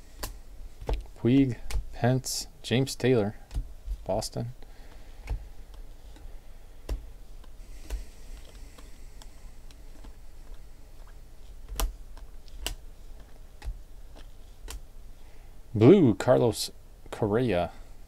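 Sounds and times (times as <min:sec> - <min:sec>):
cards flicked ticking and clicking: 0:00.2 - 0:02.0, 0:03.3 - 0:14.9.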